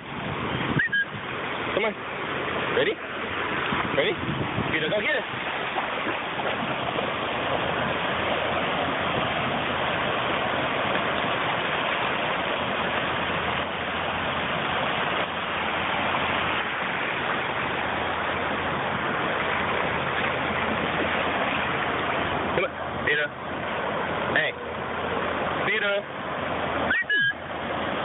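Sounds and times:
surf washing over shallows: 0.0 - 28.0.

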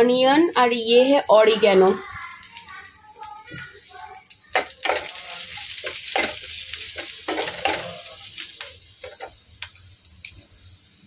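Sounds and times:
onions sizzling in hot oil: 0.0 - 11.0
wooden spatula scraping pan: 5.8 - 8.1.

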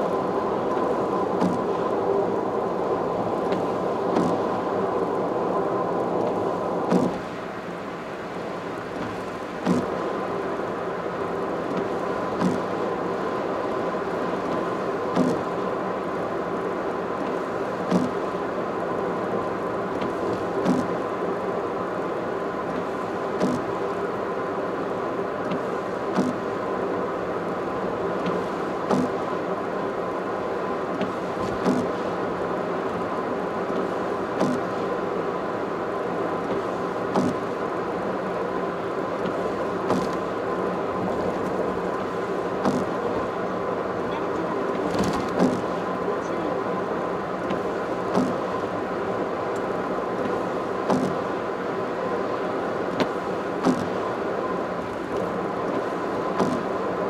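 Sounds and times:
car road and engine noise: 0.0 - 57.0
faint constant whine: 0.0 - 57.0.

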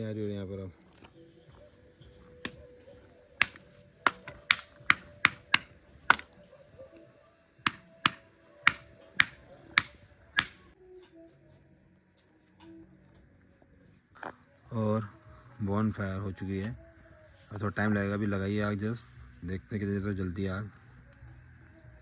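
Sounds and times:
firewood snapping and cracking: 3.4 - 6.4.

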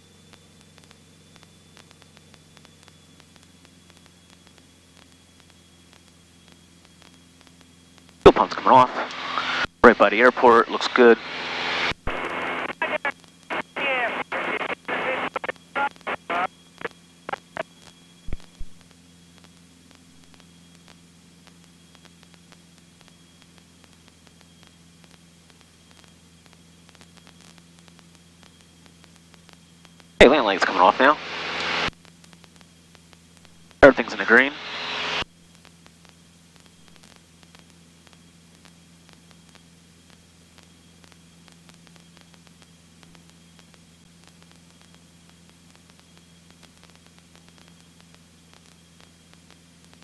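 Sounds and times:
aircraft engine drone over headset: 0.0 - 50.0
hiss and crackling static: 0.0 - 50.0
headset intercom hiss: 8.3 - 18.6, 30.2 - 31.9, 33.8 - 35.3.

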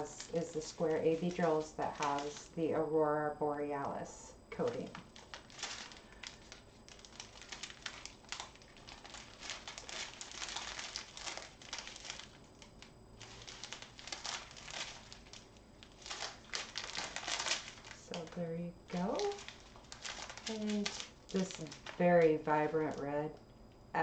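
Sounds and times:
plastic bags crinkling: 0.0 - 2.8, 4.6 - 23.3.

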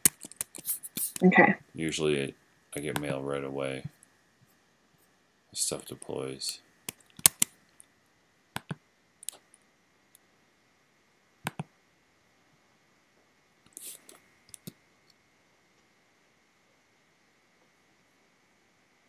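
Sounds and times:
computer mouse clicking: 0.0 - 1.2, 6.9 - 7.6, 8.6 - 9.5, 11.4 - 11.7, 13.7 - 14.8.

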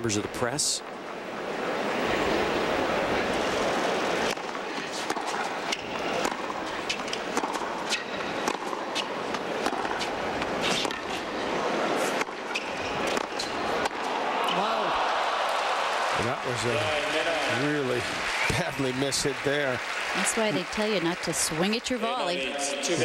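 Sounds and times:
racket hitting tennis ball: 3.8 - 11.4, 12.0 - 14.7
crowd murmur: 9.2 - 23.0.

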